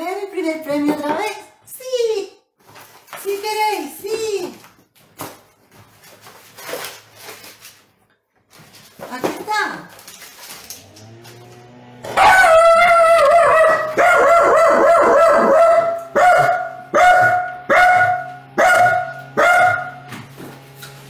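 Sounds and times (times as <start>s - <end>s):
small dog barking and howling: 12.1s - 20.0s.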